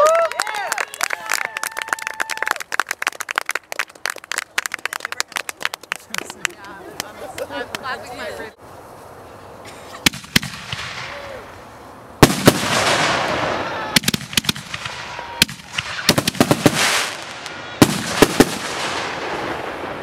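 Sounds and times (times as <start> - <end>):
crackling hiss of fireworks: 1.3 - 20.0
fireworks bangs: 10.0 - 11.6, 12.2 - 20.0.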